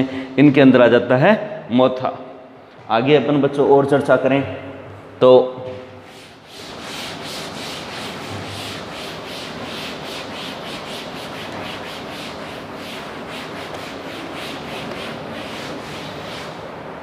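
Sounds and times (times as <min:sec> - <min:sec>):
cloth wiping chalkboard: 0:05.7 - 0:16.8.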